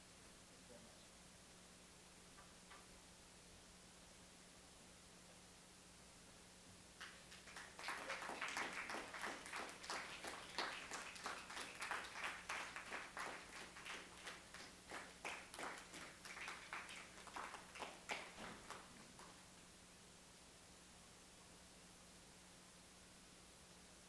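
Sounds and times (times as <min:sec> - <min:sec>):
audience applauding: 0:07.0 - 0:19.4.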